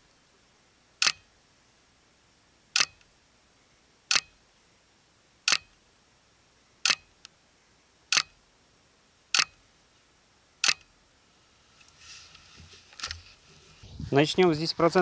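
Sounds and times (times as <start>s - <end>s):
faint rustle: 10.9s - 15.0s.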